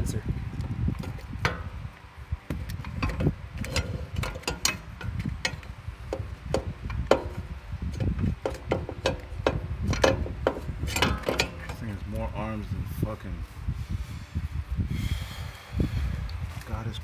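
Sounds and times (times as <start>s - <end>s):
low handling rumble: 0.0s - 17.0s
metallic clicks and knocks: 2.6s - 11.9s.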